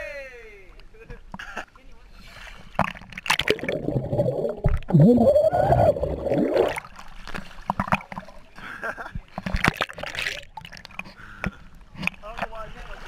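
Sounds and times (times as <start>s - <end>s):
underwater gurgling with bubbles: 2.9s - 7.0s.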